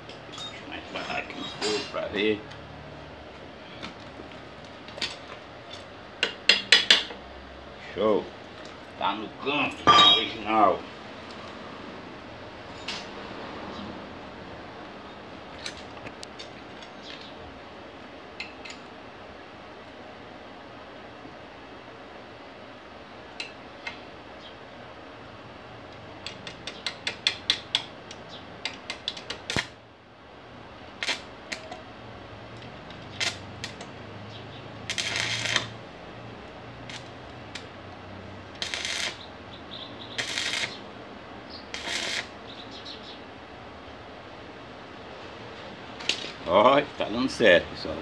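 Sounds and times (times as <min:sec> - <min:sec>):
electrode tapping metal clicks: 0:25.9 - 0:29.7
welding arc crackling: 0:28.8 - 0:29.8, 0:30.9 - 0:31.8, 0:33.0 - 0:33.9, 0:34.6 - 0:36.0, 0:36.7 - 0:37.8, 0:38.4 - 0:39.3, 0:40.0 - 0:41.0, 0:41.6 - 0:42.4.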